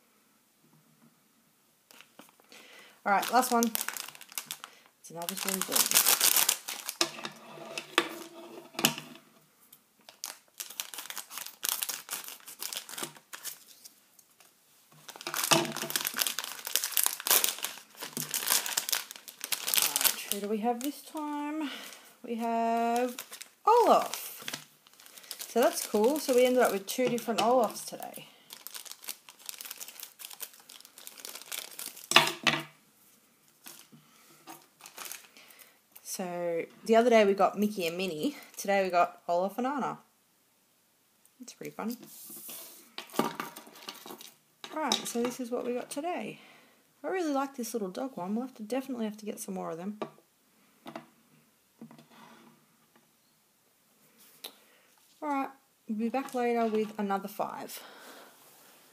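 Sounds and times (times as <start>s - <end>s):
plastic packet crinkling: 3.1s - 7.4s, 10.0s - 32.4s, 33.6s - 33.9s, 34.5s - 35.7s, 43.1s - 45.4s.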